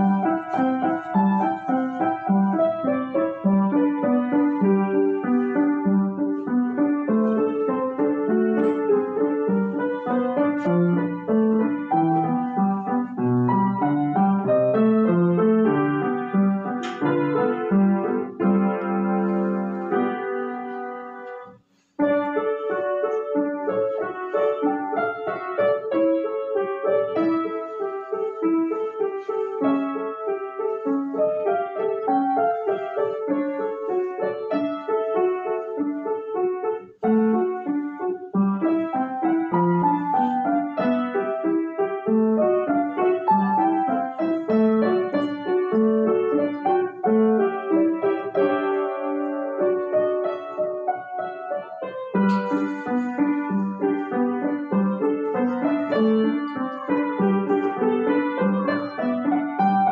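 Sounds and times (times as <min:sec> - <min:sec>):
solo piano music: 0:00.0 - 0:59.9.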